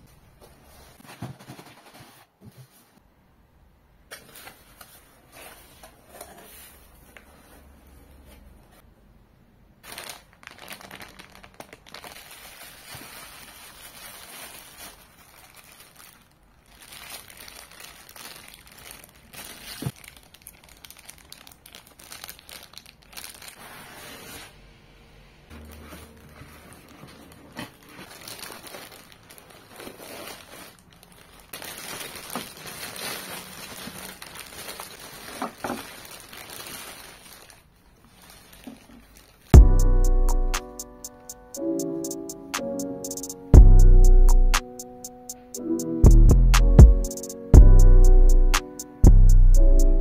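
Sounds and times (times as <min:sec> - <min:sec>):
cardboard and plastic bag rustling: 0:00.3 - 0:03.0, 0:04.1 - 0:08.8, 0:09.8 - 0:24.6, 0:25.5 - 0:39.6.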